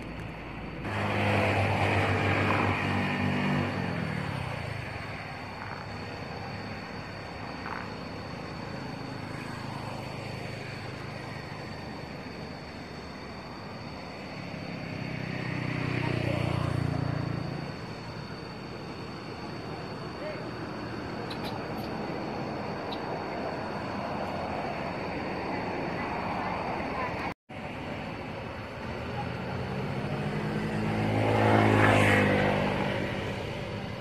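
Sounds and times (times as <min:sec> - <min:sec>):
vehicle engine passing: 0:00.0 - 0:19.9, 0:28.6 - 0:34.0
background traffic noise: 0:00.0 - 0:34.0.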